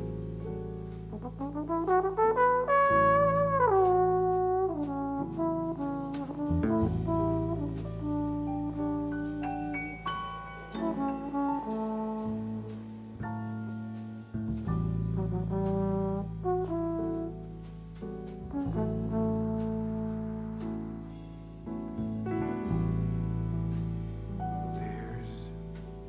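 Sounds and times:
drum kit with cymbals: 0.0s - 26.0s
jazz trombone melody: 0.0s - 26.0s
piano: 0.0s - 26.0s
electric bass: 6.4s - 9.0s.

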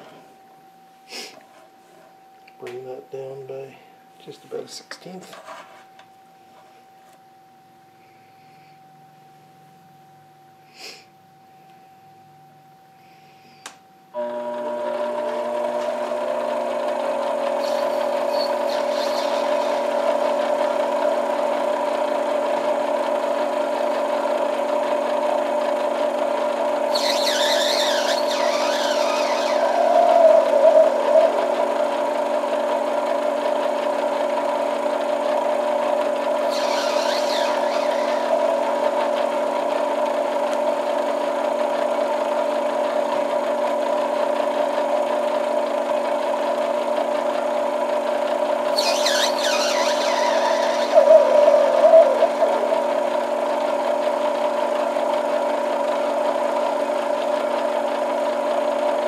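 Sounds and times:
lathe motor humming: 14.2s - 59.0s
high wavering cutting noise: 17.6s - 21.3s, 26.9s - 33.6s, 36.4s - 39.9s, 48.7s - 54.3s.

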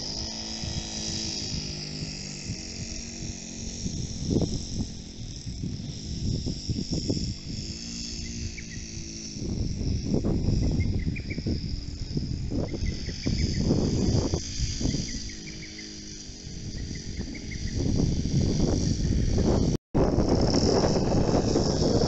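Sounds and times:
distant model aircraft engine hum: 0.0s - 22.0s
high drone of insects: 0.0s - 22.0s
wind buffeting microphone: 0.0s - 22.0s.

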